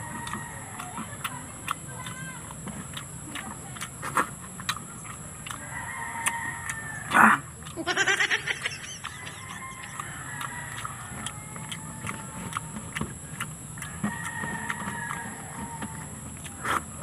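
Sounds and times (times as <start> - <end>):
goat bleating: 7.8 - 8.9.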